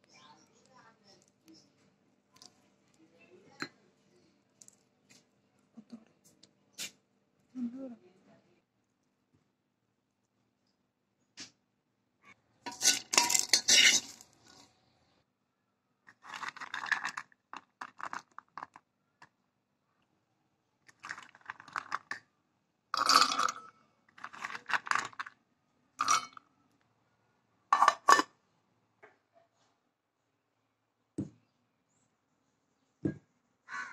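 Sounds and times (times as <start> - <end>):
nuts clinking and scraping on dishes: 12.7 - 14.8, 16.1 - 19.4, 20.9 - 22.3, 23.0 - 25.4, 26.0 - 26.5, 27.8 - 28.4.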